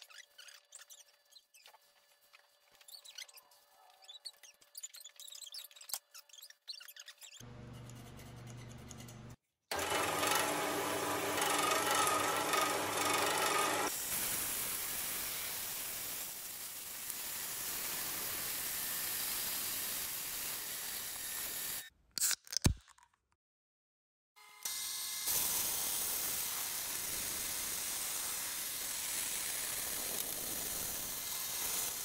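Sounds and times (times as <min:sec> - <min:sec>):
bandsaw cutting steel: 0:09.7 - 0:21.9, 0:24.6 - 0:32.0.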